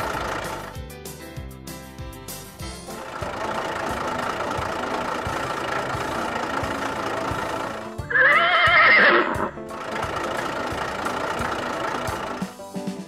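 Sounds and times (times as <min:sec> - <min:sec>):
background music with beat: 0:00.0 - 0:13.0
horse whinnying: 0:08.0 - 0:09.6.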